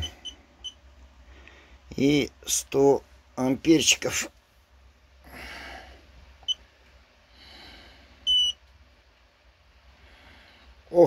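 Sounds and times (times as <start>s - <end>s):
battery tester beep: 0.0s - 0.8s, 8.2s - 8.6s.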